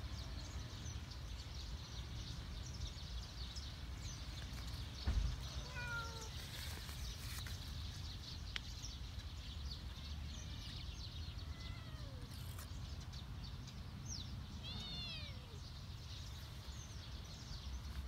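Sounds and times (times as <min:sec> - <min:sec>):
low thump: 0:05.0 - 0:05.5
cat meowing: 0:05.5 - 0:06.4, 0:11.4 - 0:12.3, 0:14.6 - 0:15.6.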